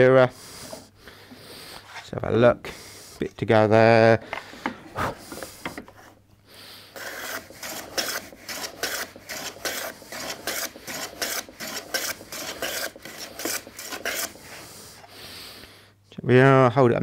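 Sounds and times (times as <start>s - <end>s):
hand plane shaving wood: 7.0s - 14.8s.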